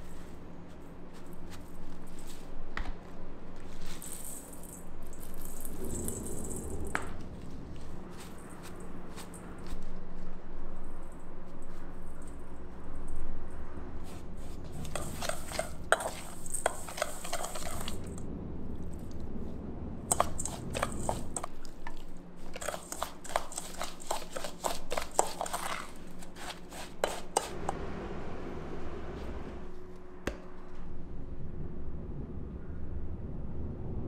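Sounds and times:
utensils and containers clattering: 0:14.7 - 0:18.2, 0:20.1 - 0:27.7.

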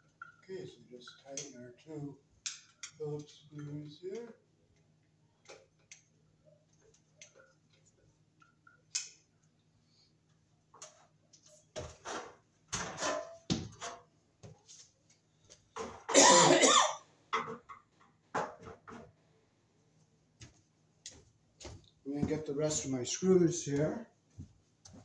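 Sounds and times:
stepladder knocks and clatter: 0:11.8 - 0:14.1.

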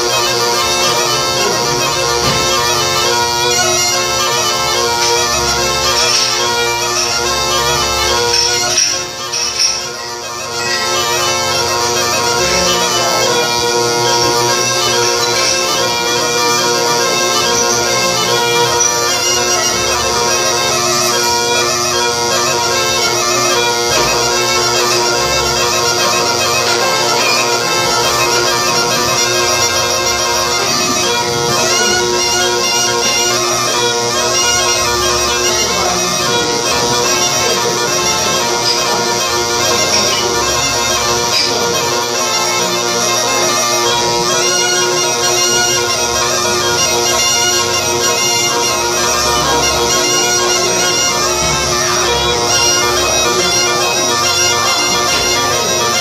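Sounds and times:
reed pipe dance melody: 0:00.0 - 0:56.0.

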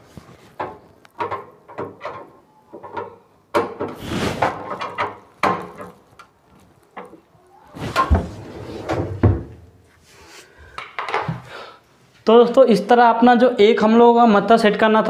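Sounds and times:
drawer sliding on metal runners: 0:07.8 - 0:09.5.

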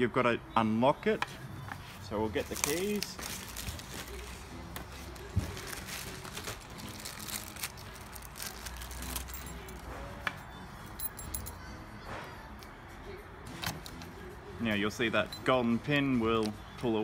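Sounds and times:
small keys clinking: 0:08.4 - 0:11.7.

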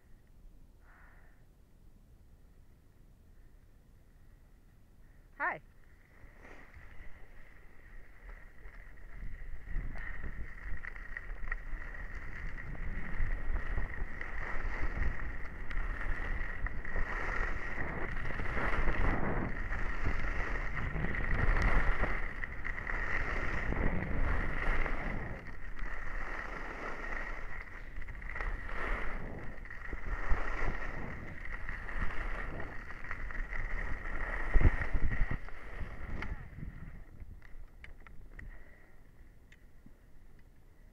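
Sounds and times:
skis scraping over snow: 0:05.4 - 0:39.0
wind rushing over microphone: 0:09.0 - 0:38.6.

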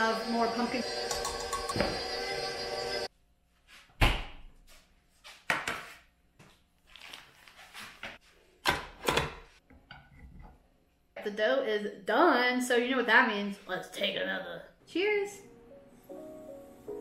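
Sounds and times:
background music: 0:15.3 - 0:17.0.

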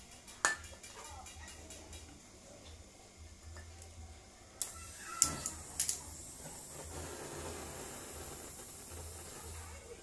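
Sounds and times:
torch burning hiss: 0:01.9 - 0:10.0.

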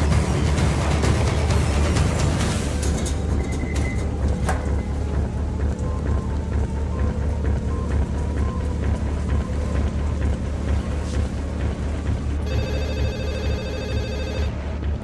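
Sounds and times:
tense music with pulsing beat: 0:00.0 - 0:15.0
mobile phone ringing: 0:12.4 - 0:14.6.

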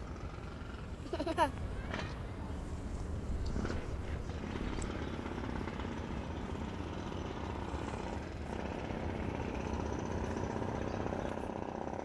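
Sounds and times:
outdoor background rumble: 0:00.0 - 0:12.0.

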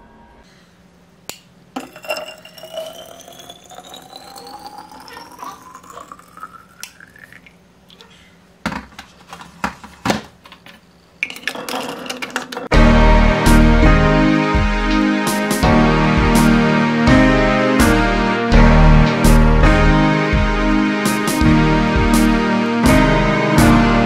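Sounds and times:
water pouring into glass bottle: 0:01.8 - 0:07.6.

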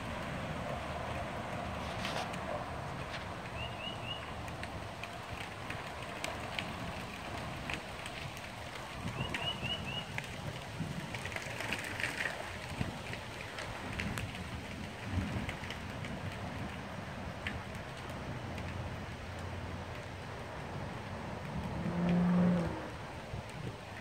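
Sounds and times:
steady rushing wind noise: 0:00.0 - 0:24.0
bird chirping: 0:03.6 - 0:04.3
light ticks: 0:17.4 - 0:20.2.

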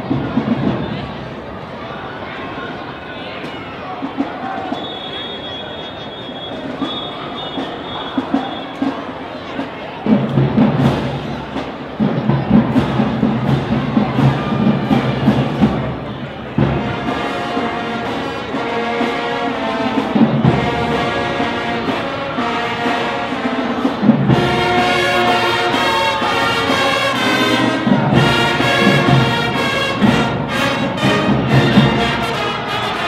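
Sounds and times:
marching band drums: 0:00.0 - 0:01.8, 0:03.9 - 0:33.0
brass section held notes: 0:16.8 - 0:33.0.

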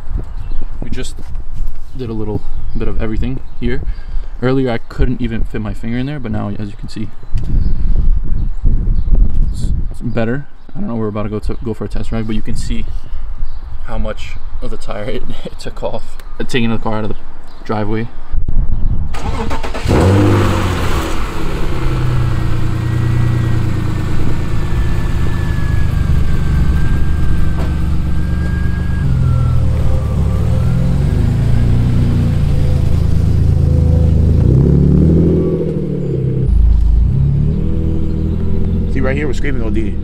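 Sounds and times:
car engine starting and idling: 0:19.2 - 0:40.0
car pulling away: 0:19.2 - 0:40.0.

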